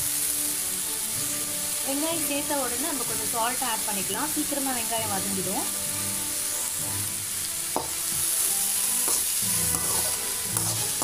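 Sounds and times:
onions sizzling in hot oil: 0:00.0 - 0:11.0
spatula stirring: 0:09.0 - 0:11.0.

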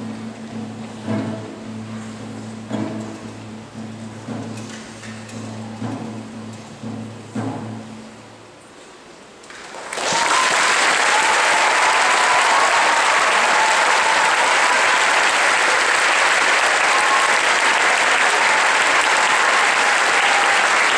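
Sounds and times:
large audience applauding: 0:09.4 - 0:20.9.

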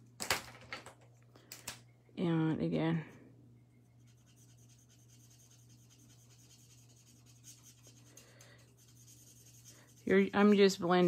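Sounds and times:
steady low hum: 0:00.9 - 0:11.0
marker scratching on cardstock: 0:04.0 - 0:10.9.

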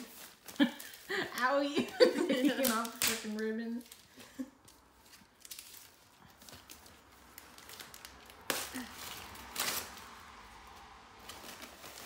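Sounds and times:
wrapping paper rustling: 0:00.0 - 0:12.0
paper tearing rip: 0:07.6 - 0:10.2.

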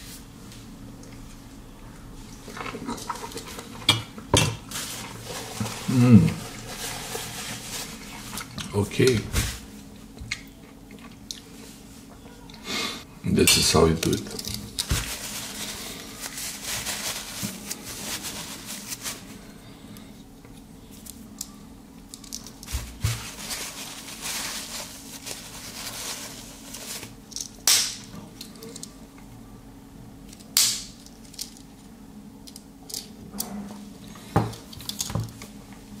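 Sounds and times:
rustling and scraping: 0:04.6 - 0:09.7, 0:14.0 - 0:19.5, 0:22.4 - 0:27.2.

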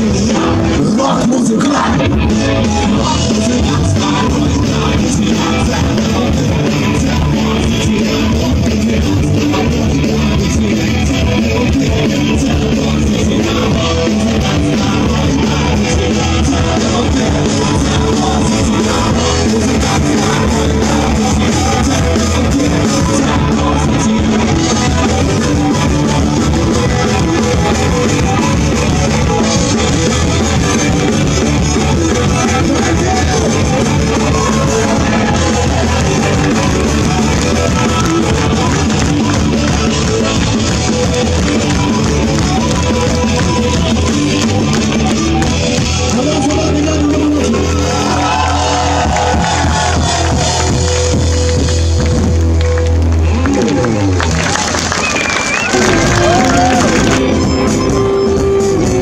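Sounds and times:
drum kit: 0:00.0 - 0:59.0
electric guitar: 0:00.0 - 0:59.0
rock band playing: 0:00.0 - 0:59.0.

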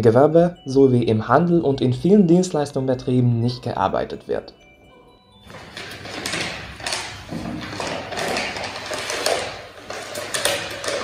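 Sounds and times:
paper rustling and crinkling: 0:05.4 - 0:11.0.

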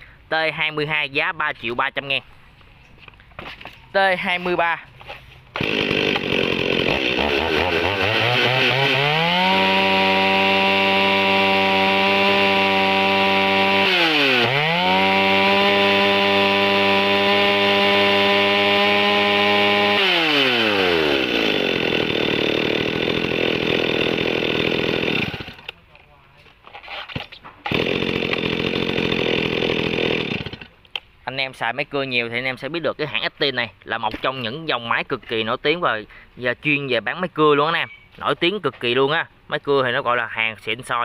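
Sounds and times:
chainsaw revving and idling: 0:05.5 - 0:25.8, 0:27.7 - 0:30.8.

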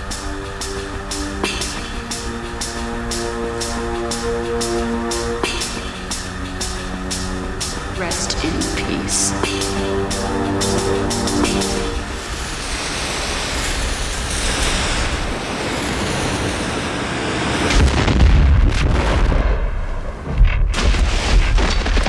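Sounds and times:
loud rushing noise: 0:00.0 - 0:18.8.

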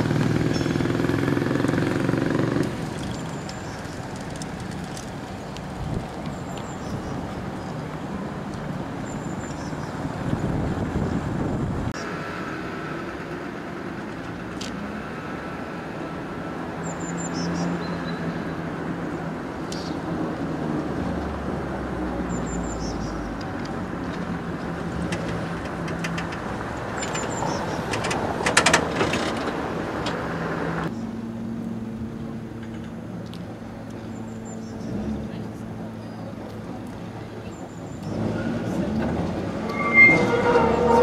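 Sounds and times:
tram rumbling on track: 0:00.0 - 0:16.8, 0:18.5 - 0:41.0
clicks and rattles: 0:25.0 - 0:29.6.

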